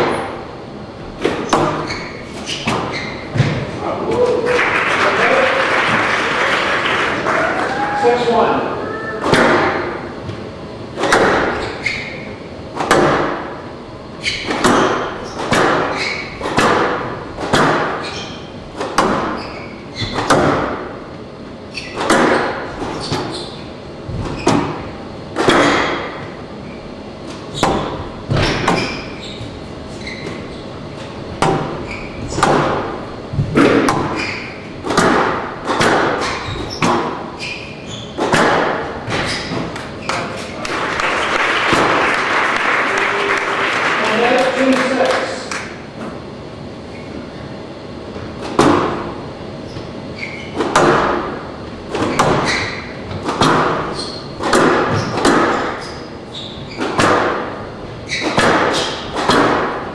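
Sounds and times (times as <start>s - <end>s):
ball smacking court walls: 1.2s - 4.3s, 9.2s - 21.1s, 21.8s - 26.4s, 27.2s - 40.8s, 41.7s - 42.0s, 48.1s - 49.2s, 49.8s - 59.9s
squash racquet hitting ball: 1.2s - 4.3s, 9.2s - 10.2s, 10.9s - 21.1s, 21.8s - 26.4s, 27.3s - 29.2s, 31.3s - 40.7s, 41.7s - 42.1s, 48.3s - 49.2s, 50.3s - 59.9s.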